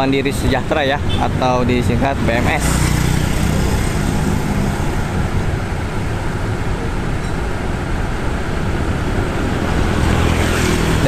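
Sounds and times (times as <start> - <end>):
road traffic: 0.0 - 11.0
motorcycle passing: 1.5 - 6.8, 8.8 - 11.0.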